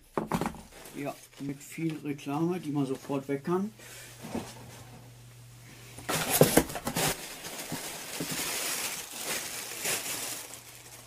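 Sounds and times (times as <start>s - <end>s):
plastic packing crinkling: 0.5s - 3.2s, 6.1s - 11.0s.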